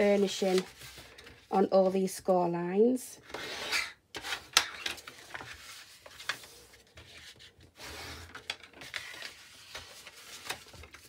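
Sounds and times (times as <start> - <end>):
burnishing tool scraping paper: 0.0 - 1.1
paper rustling: 0.0 - 1.5, 4.2 - 11.0.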